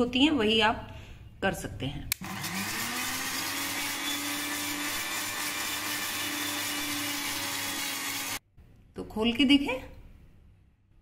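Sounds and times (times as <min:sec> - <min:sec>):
mixer grinder motor whining: 0:02.2 - 0:08.4.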